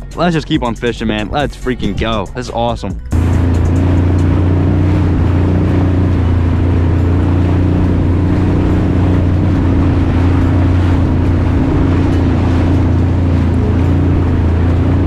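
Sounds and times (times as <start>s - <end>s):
jet ski engine droning: 0.0s - 15.0s
water rushing: 1.1s - 15.0s.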